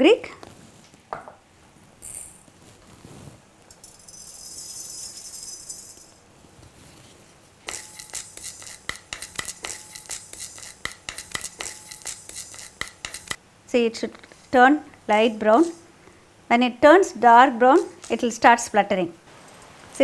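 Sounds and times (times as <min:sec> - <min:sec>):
seeds rattling in a metal pan: 0:03.7 - 0:06.2, 0:07.7 - 0:13.4
wooden spatula scraping: 0:06.4 - 0:13.4, 0:14.0 - 0:14.7.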